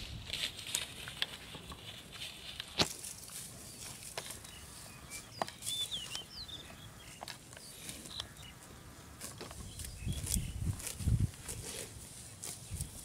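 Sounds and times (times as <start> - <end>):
bird chirps: 3.7 - 8.9
buffalo munching dry straw: 6.8 - 13.0.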